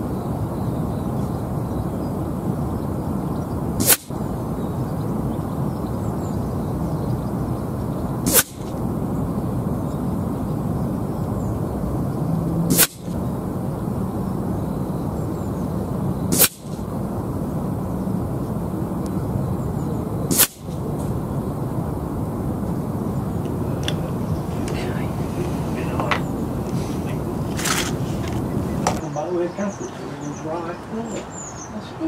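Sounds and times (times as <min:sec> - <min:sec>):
wind noise on microphone: 0:00.0 - 0:29.1
air rifle shots: 0:03.8 - 0:04.2, 0:08.2 - 0:08.9, 0:12.7 - 0:13.2, 0:16.3 - 0:16.9, 0:20.3 - 0:21.1.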